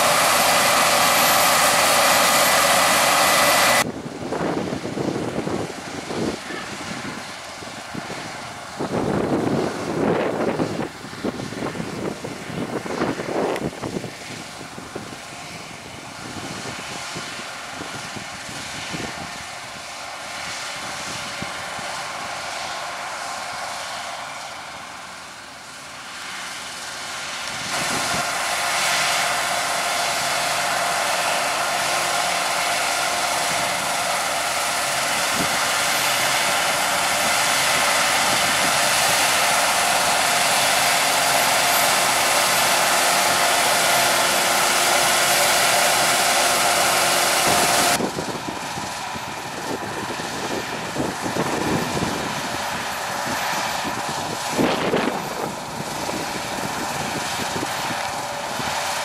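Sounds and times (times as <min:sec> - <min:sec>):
combine harvester running: 0:00.0 - 0:59.0
steady machine whine: 0:00.0 - 0:59.0
tractor engine: 0:00.0 - 0:59.0.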